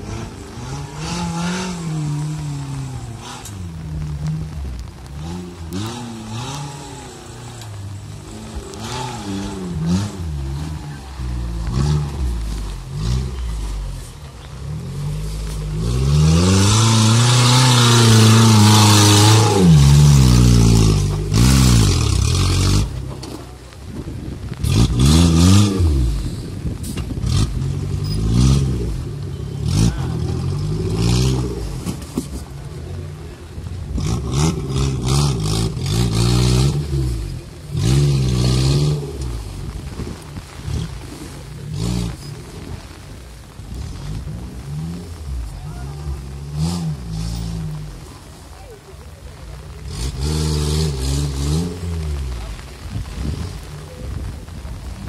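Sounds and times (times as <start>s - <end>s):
engine revving hard: 15.6s - 23.0s, 49.8s - 52.7s.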